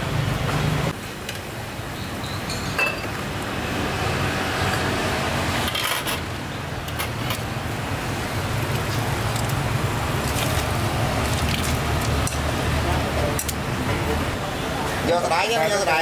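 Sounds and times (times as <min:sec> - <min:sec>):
road traffic rumble: 0:00.0 - 0:16.0
crockery and utensils clinking: 0:02.4 - 0:03.2.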